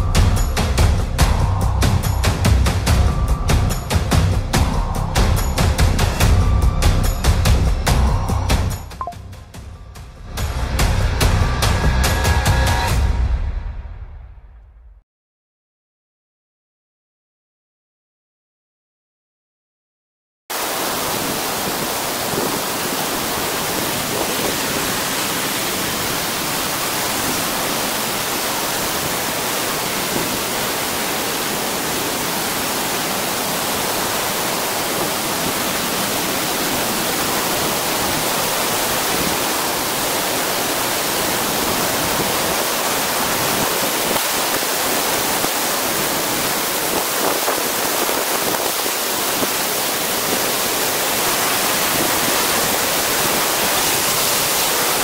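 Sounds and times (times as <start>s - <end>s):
waterfall rushing: 20.5s - 55.0s.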